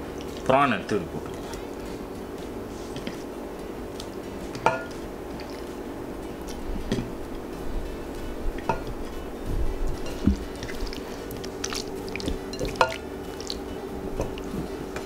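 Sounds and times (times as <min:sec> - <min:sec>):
hand clinking against glass dish: 0:12.5 - 0:13.1.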